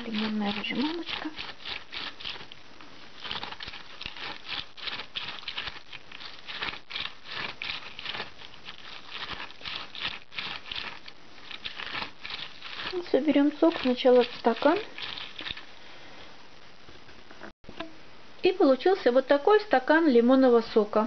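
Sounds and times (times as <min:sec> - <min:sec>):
lemon squishing on plastic juicer: 0:00.0 - 0:15.8.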